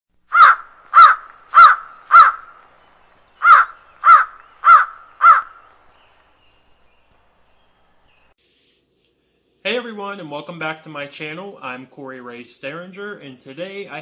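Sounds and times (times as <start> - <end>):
crow cawing: 0.3 - 2.6, 3.4 - 5.7.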